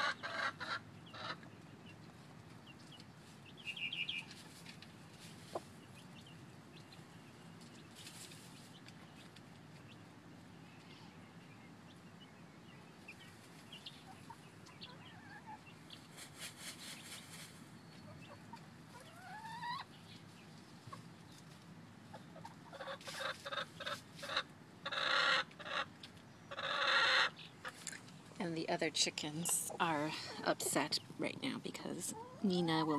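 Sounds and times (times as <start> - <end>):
chickens clucking: 0.0 - 32.9
faint rustling: 7.6 - 9.8, 15.8 - 17.8.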